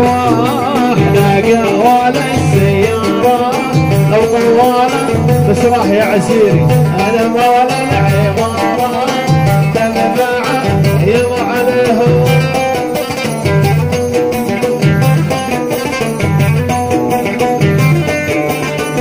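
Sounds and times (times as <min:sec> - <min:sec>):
party music over sound system: 0:00.0 - 0:13.0.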